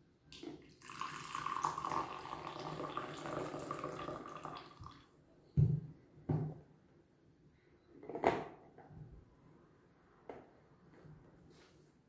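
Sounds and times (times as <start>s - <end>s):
liquid pouring into a glass mug: 0.6s - 5.1s.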